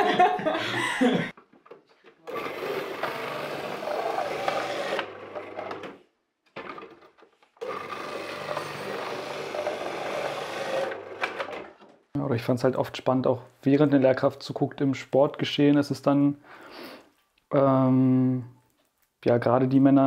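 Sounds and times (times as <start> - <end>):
food processor whirring and cutting: 2.3 - 6.0, 7.6 - 11.5.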